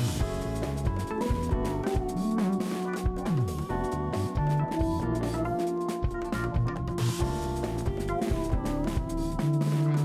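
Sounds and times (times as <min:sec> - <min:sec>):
instrumental music with drum beat: 0:00.0 - 0:10.0.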